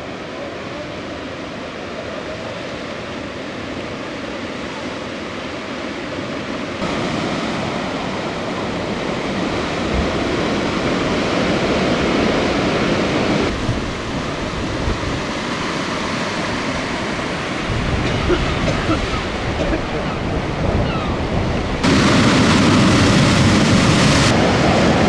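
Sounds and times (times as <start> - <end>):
surf breaking over rocks: 6.8 - 25.0
wind buffeting microphone: 6.8 - 25.0.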